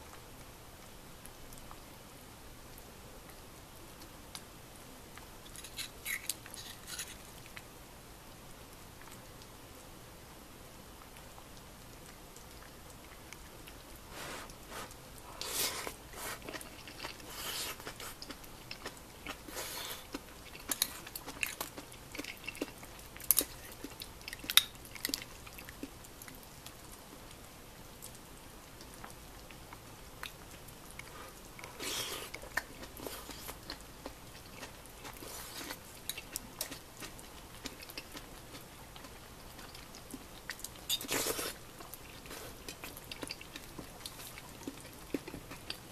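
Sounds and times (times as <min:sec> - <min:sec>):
person chewing food: 0:05.1 - 0:07.7, 0:11.0 - 0:27.3, 0:28.8 - 0:45.9.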